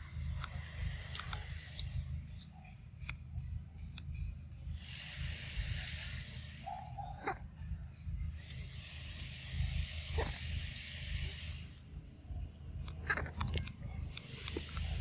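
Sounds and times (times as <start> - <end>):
steady hiss: 4.6 - 7.0, 8.3 - 12.5, 14.1 - 15.0.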